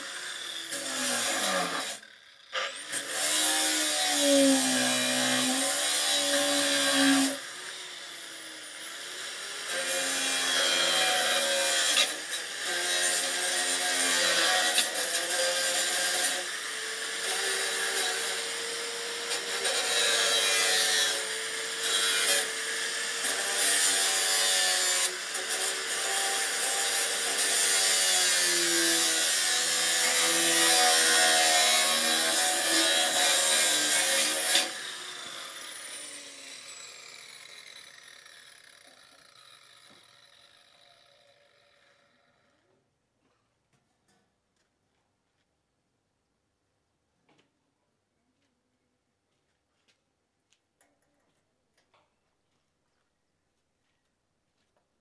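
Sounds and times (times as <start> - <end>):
angle grinder cutting metal bar: 0.0 - 42.6.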